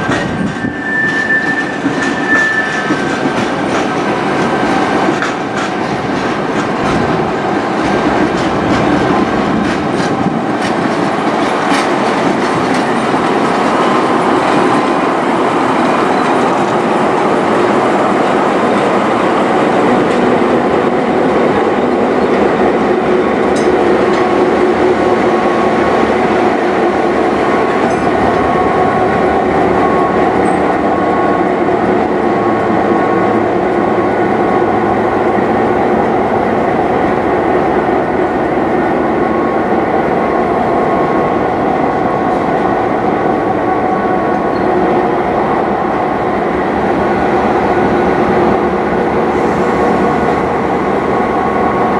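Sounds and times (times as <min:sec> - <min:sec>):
train wheels clattering on rails: 0:00.0 - 0:39.4.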